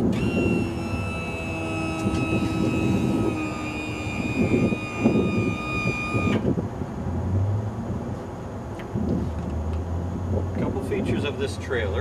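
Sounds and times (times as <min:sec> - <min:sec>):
electric hydraulic pump whining: 0:00.0 - 0:06.5.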